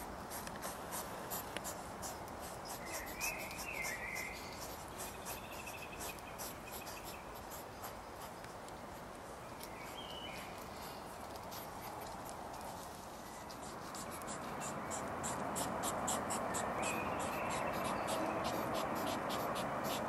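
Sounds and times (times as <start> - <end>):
hedgehog chewing and crunching: 0.0 - 20.0
birds chirping: 2.1 - 8.4, 9.4 - 11.1, 12.5 - 20.0.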